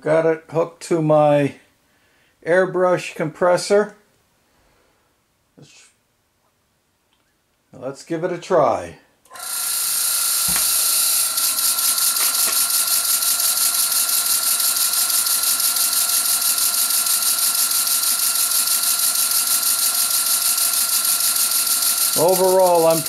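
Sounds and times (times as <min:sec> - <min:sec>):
thin steady whine: 0:09.8 - 0:23.0.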